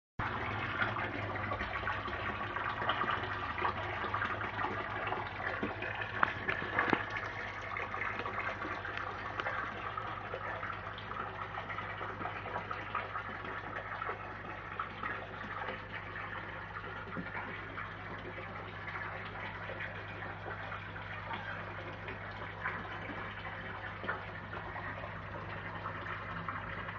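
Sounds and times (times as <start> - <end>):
low steady hum: 0.2 - 26.9
water splashing and bubbling: 0.2 - 26.9.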